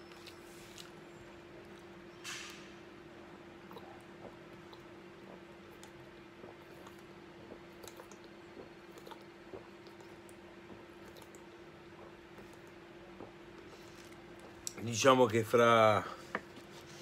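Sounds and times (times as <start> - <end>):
faint steady hum: 0.0 - 17.0
man swallowing water: 3.1 - 14.8.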